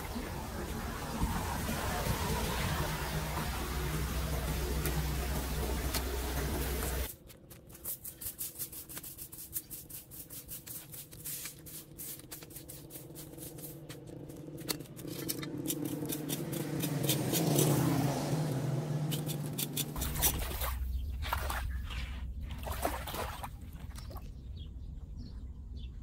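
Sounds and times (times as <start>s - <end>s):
low steady hum: 0.0s - 7.1s
broom sweeping on concrete: 6.8s - 14.4s
rake scraping metal grate: 7.8s - 17.9s, 19.1s - 20.4s.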